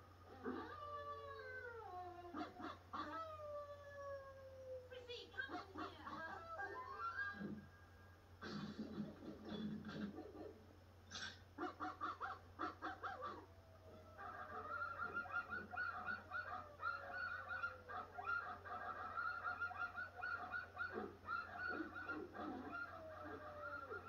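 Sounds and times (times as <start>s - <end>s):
cartoon dogs barking: 2.2s - 3.3s, 5.4s - 7.6s, 8.4s - 24.0s.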